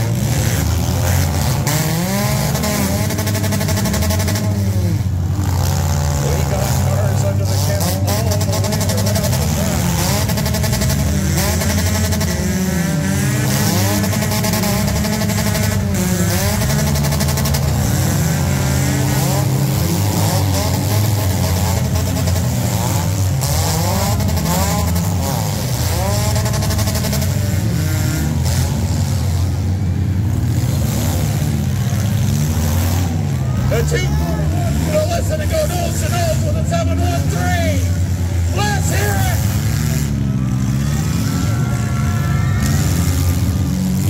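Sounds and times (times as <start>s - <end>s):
car engines revving: 0.0s - 44.0s.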